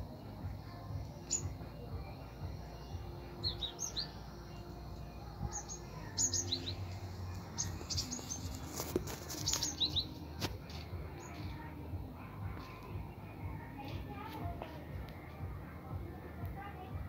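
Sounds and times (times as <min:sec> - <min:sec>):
small animal chirps: 0:05.5 - 0:11.4.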